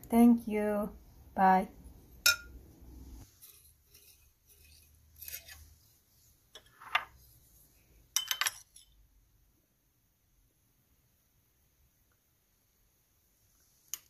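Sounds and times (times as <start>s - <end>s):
metal spoon clinking on glass bowl: 2.2s - 2.6s, 8.2s - 9.0s.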